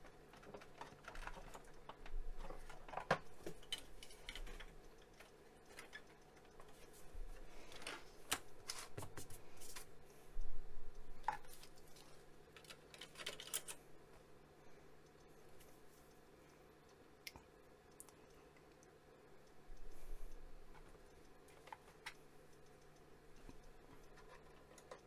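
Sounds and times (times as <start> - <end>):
clicks and taps of computer parts: 0.0 - 7.0, 7.7 - 9.9, 11.2 - 13.8, 23.4 - 25.0.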